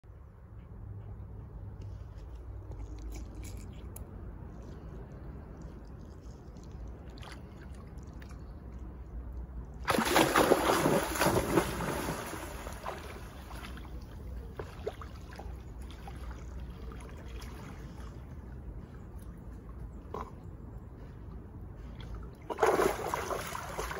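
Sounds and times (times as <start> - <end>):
dog splashing into water: 9.8 - 14.0, 22.5 - 23.9
dog swimming splashes: 9.8 - 18.5, 21.9 - 23.9.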